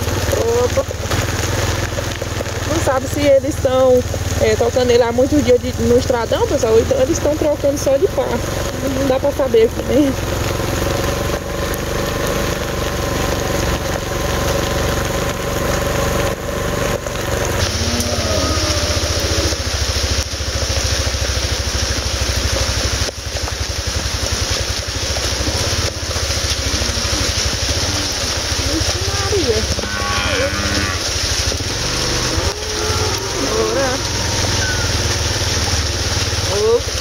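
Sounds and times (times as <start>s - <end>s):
vehicle engine running: 0.0s - 37.0s.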